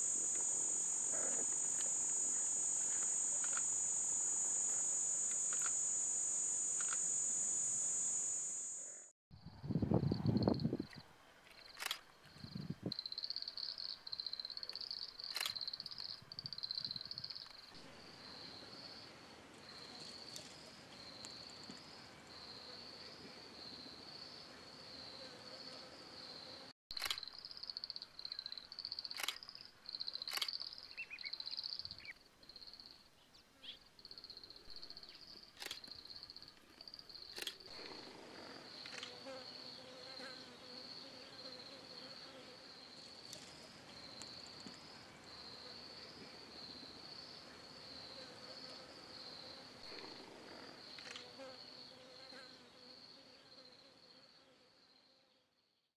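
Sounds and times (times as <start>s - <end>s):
insects chirring: 0.0s - 9.1s, 11.6s - 17.7s.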